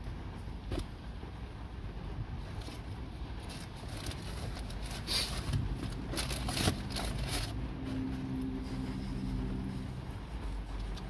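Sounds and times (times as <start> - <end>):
vehicle cabin rumble: 0.0 - 11.0
cardboard bucket crinkling: 3.4 - 7.6
low humming tone: 5.7 - 11.0.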